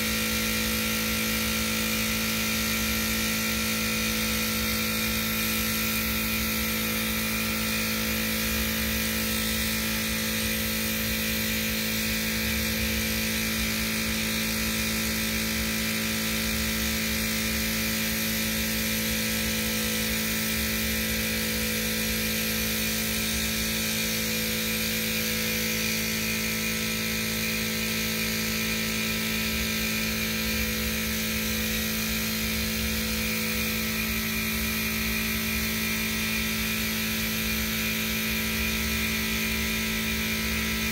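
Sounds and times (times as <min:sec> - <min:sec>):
air compressor motor hum: 0:00.0 - 0:40.9
spray gun air hiss: 0:02.3 - 0:15.0.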